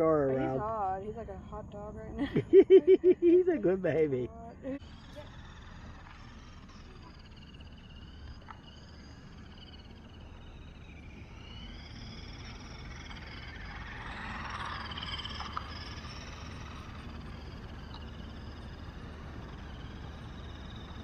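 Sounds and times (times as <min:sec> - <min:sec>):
tyres running on asphalt: 0:02.3 - 0:21.0
toy truck electric motor whining: 0:04.7 - 0:21.0.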